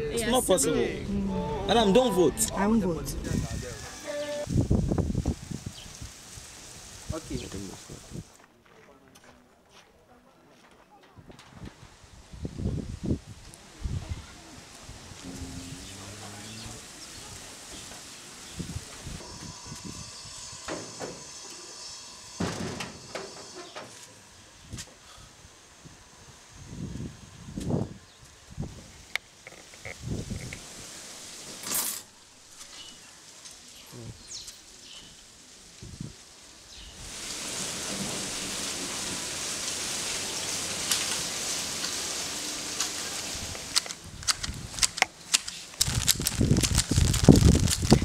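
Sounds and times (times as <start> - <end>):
steady hiss: 1.7 - 8.4, 11.7 - 48.0
knocks on steel gate: 22.4 - 23.8.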